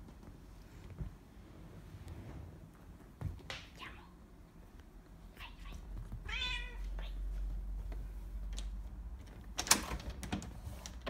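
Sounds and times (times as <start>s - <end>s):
cat meowing: 5.4s - 7.3s.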